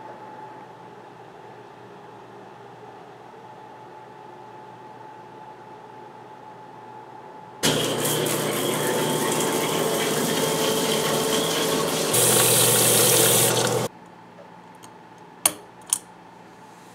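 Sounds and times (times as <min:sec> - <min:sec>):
water running from tap: 0:07.6 - 0:13.9.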